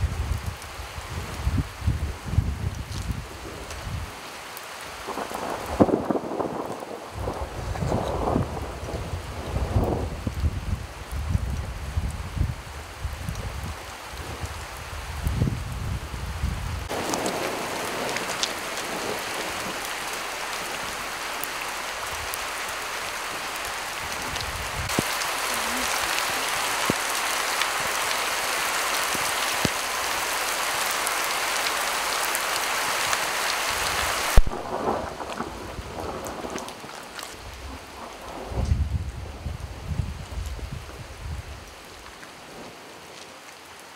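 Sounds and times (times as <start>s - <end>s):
heavy rain on roofs and street: 0.0s - 43.9s
low rumbles of thunder: 5.1s - 21.2s, 33.8s - 41.7s.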